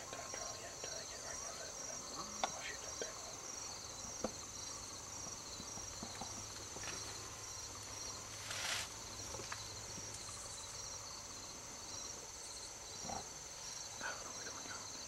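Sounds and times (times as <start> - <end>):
insects trilling: 0.0 - 15.0
brief rustle: 8.4 - 8.9.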